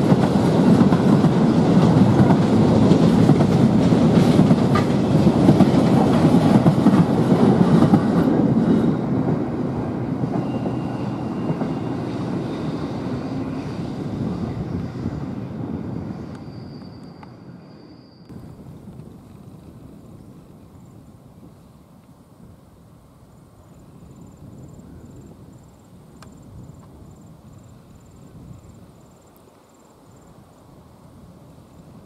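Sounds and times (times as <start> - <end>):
freight train wagons rolling: 0.0 - 20.6.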